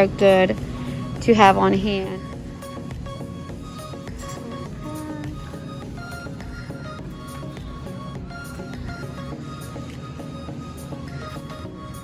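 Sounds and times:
background music: 0.0 - 12.0
light percussion strokes: 2.6 - 11.3.

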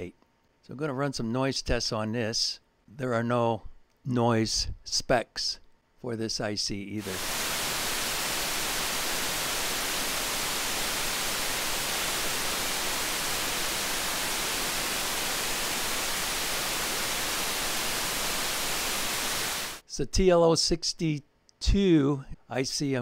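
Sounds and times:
steady electronic hiss: 7.0 - 19.9.

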